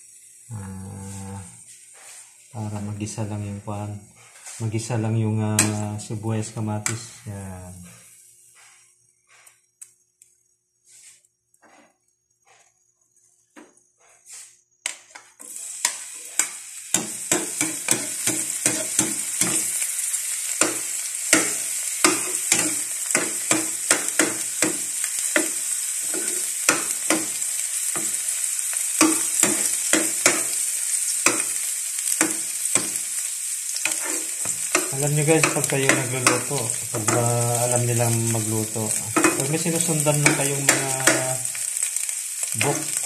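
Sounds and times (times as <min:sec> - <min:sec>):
garlic sizzling in oil: 0:00.0 - 0:09.5, 0:15.0 - 0:43.0
metal spoon scraping pan: 0:05.6 - 0:05.9, 0:15.4 - 0:20.0, 0:20.6 - 0:28.4, 0:29.0 - 0:33.0, 0:33.8 - 0:37.5, 0:38.3 - 0:41.6.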